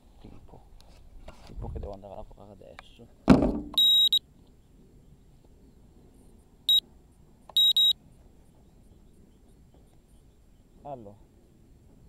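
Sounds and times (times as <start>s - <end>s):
camera thump: 3.3s - 3.8s
high electronic beeps: 3.8s - 4.2s, 7.6s - 7.9s.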